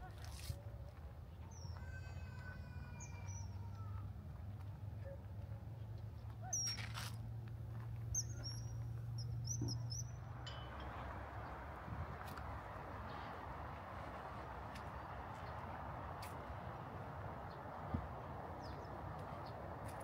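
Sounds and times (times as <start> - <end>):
small birds chirping: 8.1 - 10.2.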